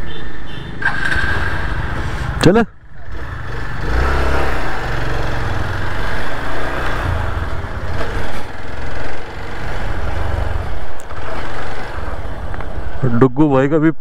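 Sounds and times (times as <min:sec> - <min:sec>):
motorcycle engine pulling away: 0:00.8 - 0:02.0, 0:02.9 - 0:12.5.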